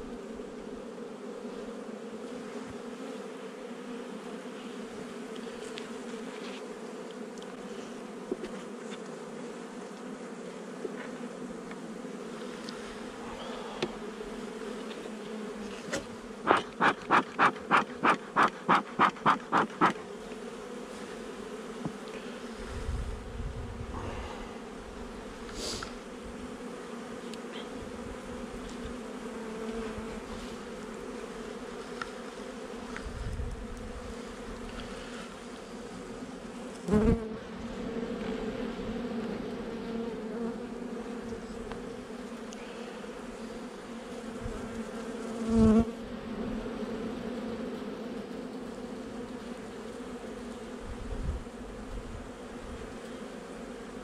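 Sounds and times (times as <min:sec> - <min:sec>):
bee colony buzzing: 0:00.0 - 0:54.0
loud puffs: 0:15.8 - 0:20.0, 0:25.5 - 0:26.0.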